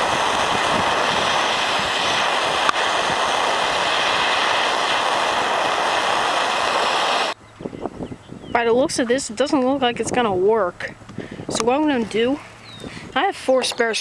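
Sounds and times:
gas torch flame hissing: 0.0s - 7.4s.

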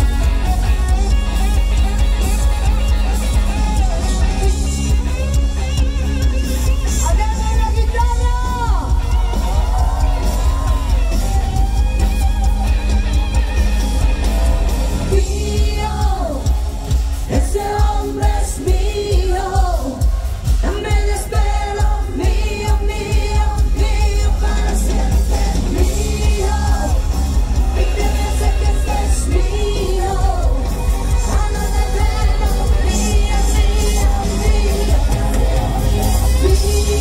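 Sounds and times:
live pop rock band: 0.0s - 37.0s
woman singing: 6.4s - 10.9s, 15.0s - 37.0s.

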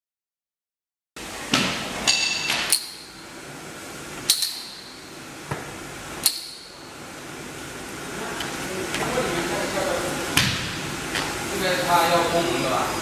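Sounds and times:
high metallic ring: 2.1s - 3.1s.

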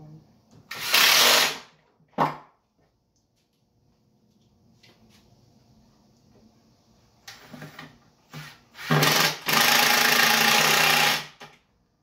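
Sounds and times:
cordless drill driving screws: 0.7s - 1.6s, 8.8s - 11.3s.

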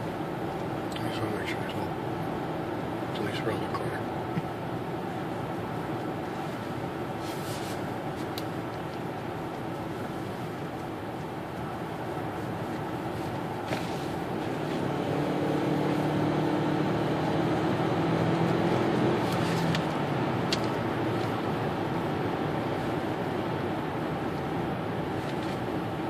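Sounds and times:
car engine accelerating: 12.9s - 26.0s.

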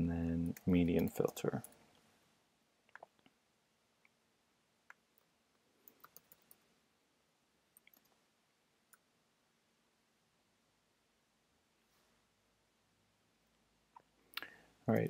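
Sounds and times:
computer keyboard clicks: 5.2s - 6.6s.

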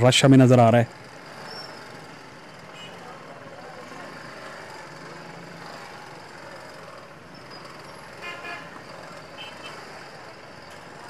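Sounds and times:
slow street traffic engines: 0.0s - 11.0s
vehicle horn honking: 2.8s - 3.0s, 8.2s - 8.8s.

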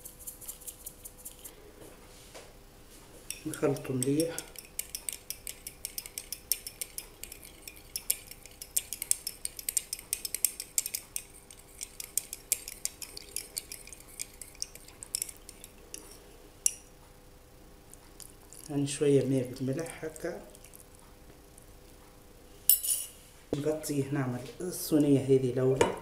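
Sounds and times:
spoon clinking against glass: 3.3s - 16.9s, 22.7s - 23.1s.

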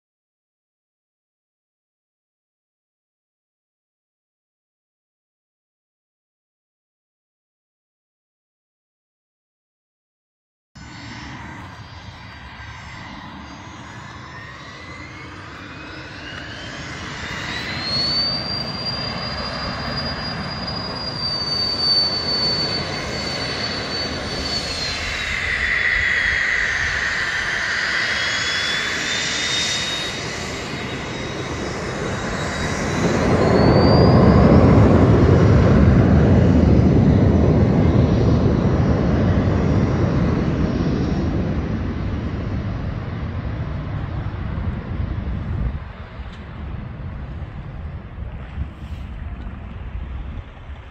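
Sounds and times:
jet engine high whine: 10.8s - 50.9s
loud low jet roar: 10.8s - 50.9s.

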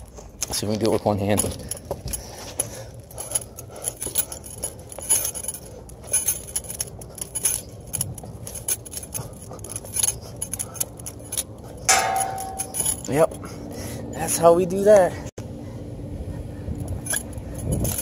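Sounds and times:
climbing gear jingling: 0.1s - 14.5s, 17.0s - 18.0s
knocks on metal ladder rungs: 11.9s - 13.1s.

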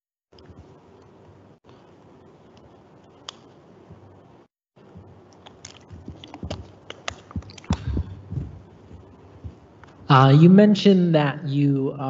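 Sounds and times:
faint microphone hiss: 0.4s - 12.0s
microphone handling knocks: 5.8s - 10.2s.

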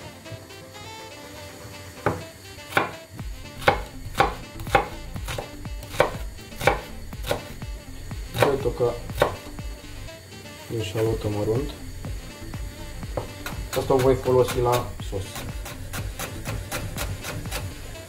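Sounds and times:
knife chopping on cutting board: 2.0s - 3.0s, 3.6s - 7.6s, 8.3s - 9.5s, 13.1s - 17.7s.

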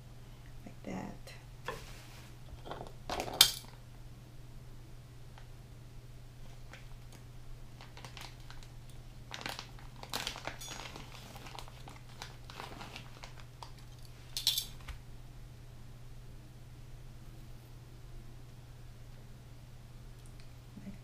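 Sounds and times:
plastic packaging crinkling: 6.5s - 14.9s.

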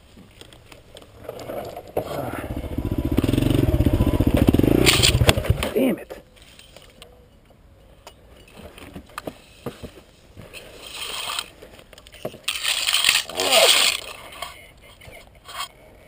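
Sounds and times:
pine branches rustling: 9.4s - 15.7s.

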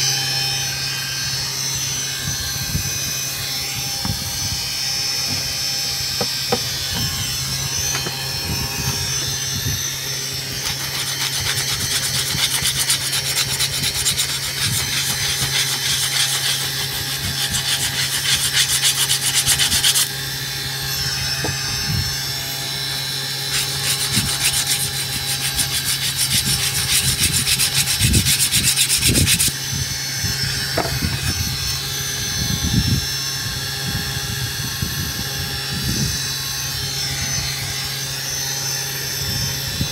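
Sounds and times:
spindle motor running: 0.0s - 39.9s
router bit rasping into fibreboard: 6.2s - 9.4s, 23.5s - 29.6s, 30.7s - 31.4s.

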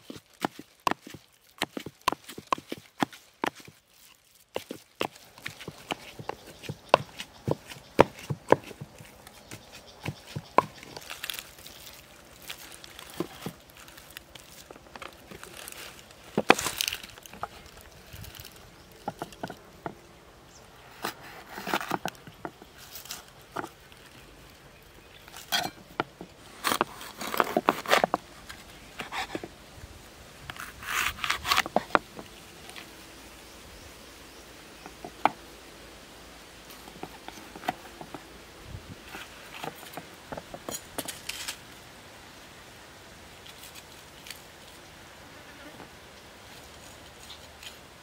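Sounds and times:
knife crunching through peppers: 0.0s - 19.4s, 25.3s - 28.2s.

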